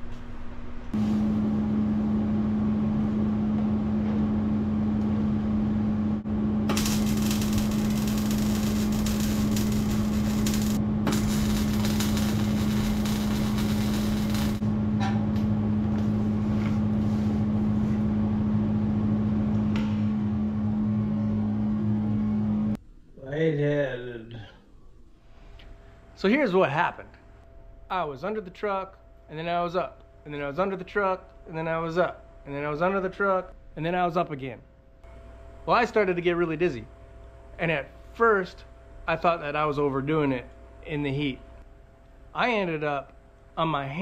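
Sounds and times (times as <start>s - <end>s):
steady mechanical hum: 0.0s - 44.0s
loud hiss: 6.7s - 14.6s.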